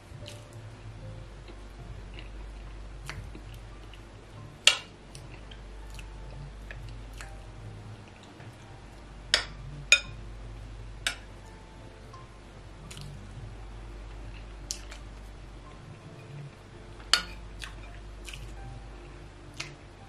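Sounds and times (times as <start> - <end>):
wet chewing: 12.9 - 13.2, 17.1 - 18.6.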